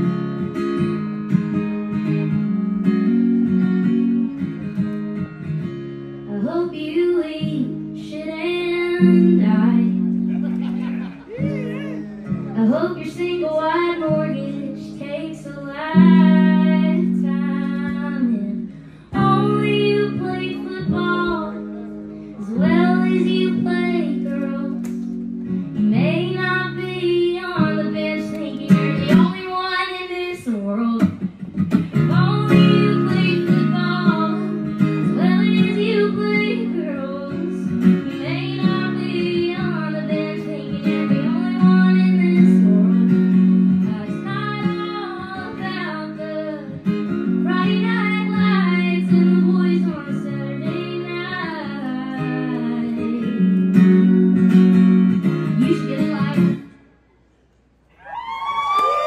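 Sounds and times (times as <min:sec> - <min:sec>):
strummed acoustic guitar: 0:00.0 - 0:56.7
woman singing: 0:06.3 - 0:10.2, 0:11.4 - 0:21.6, 0:22.4 - 0:25.2, 0:25.8 - 0:53.7, 0:55.4 - 0:56.7.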